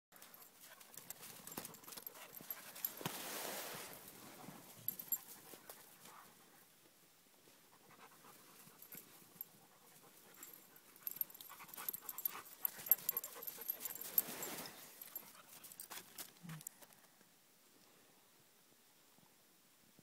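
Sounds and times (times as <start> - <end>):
dogs panting: 0.2 - 3.0, 7.7 - 16.0.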